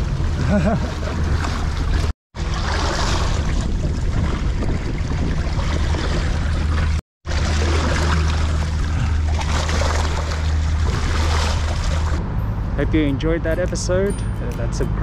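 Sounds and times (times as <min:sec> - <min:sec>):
wind rumbling on microphone: 0:00.0 - 0:13.5.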